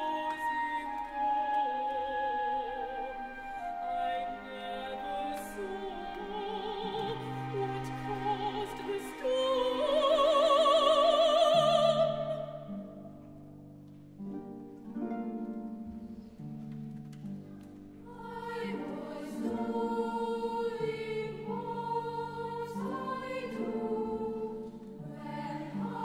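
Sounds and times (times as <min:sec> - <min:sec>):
chamber orchestra playing: 0:00.0 - 0:13.1.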